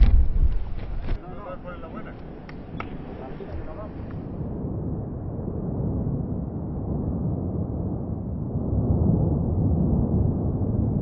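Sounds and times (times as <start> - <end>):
volcano deep rumble: 0.0 - 11.0.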